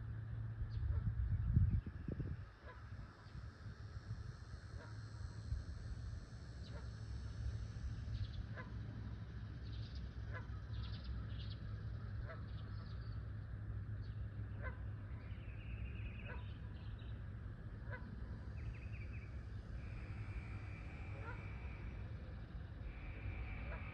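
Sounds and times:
steady low rumble: 0.0 - 23.9
waterfowl calling: 19.7 - 23.9.

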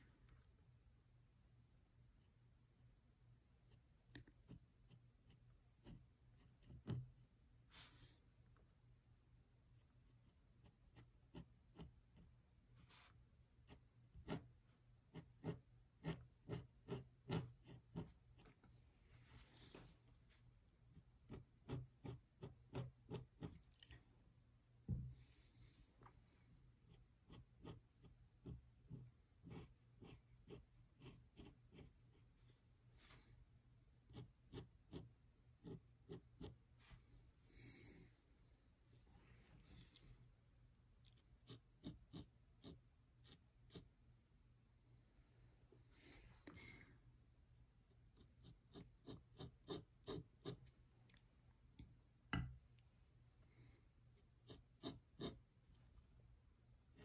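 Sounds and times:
pen nib scratching on paper: 3.7 - 8.0, 9.8 - 18.6, 20.9 - 23.8, 26.8 - 33.2, 34.0 - 37.0, 41.0 - 43.9, 47.8 - 50.8, 54.1 - 56.1.

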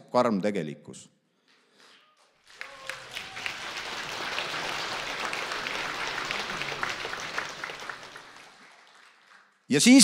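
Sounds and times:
audience applauding: 2.1 - 9.7.

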